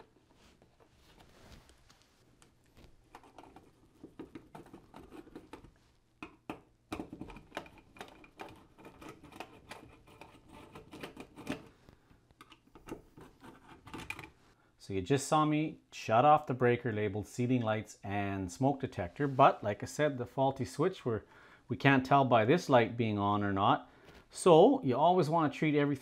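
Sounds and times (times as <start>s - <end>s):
screwdriver clicking and scraping: 7.2s - 11.7s.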